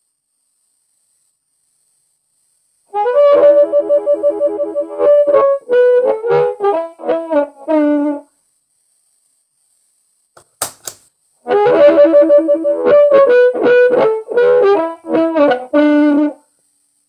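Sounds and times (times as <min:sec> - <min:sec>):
amplified blues harmonica: 0:02.9 - 0:08.2, 0:11.5 - 0:16.4.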